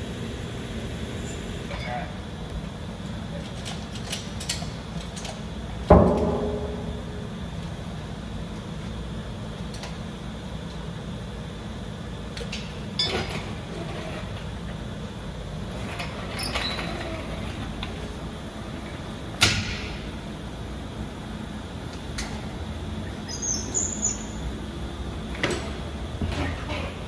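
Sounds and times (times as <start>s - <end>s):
low background hum: 0.0s - 27.0s
loud metal clank: 5.9s - 7.3s.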